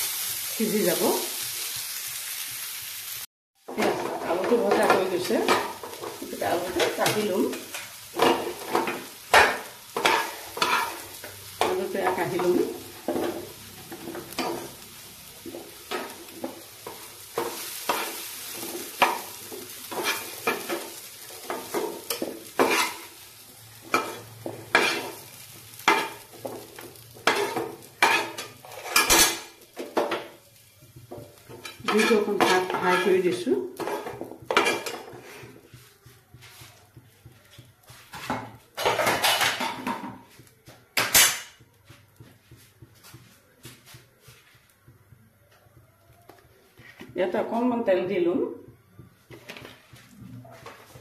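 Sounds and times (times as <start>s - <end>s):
oil sizzling: 0.0s - 51.0s
metal spatula scraping a pan: 3.7s - 14.8s, 15.5s - 23.2s, 23.8s - 29.9s, 31.4s - 35.8s, 37.5s - 40.1s.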